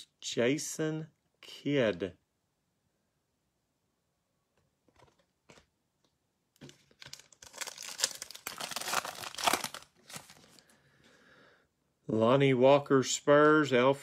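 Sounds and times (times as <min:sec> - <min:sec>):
foil wrapper tearing and crinkling: 0:06.9 - 0:10.6.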